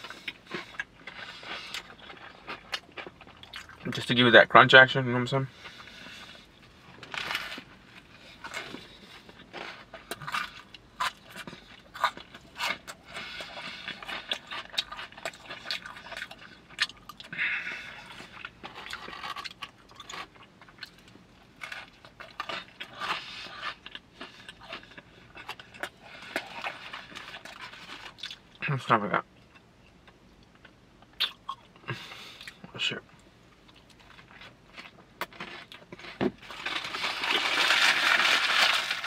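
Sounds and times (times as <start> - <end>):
crunching and chewing food: 0.0 - 4.7, 5.4 - 39.0.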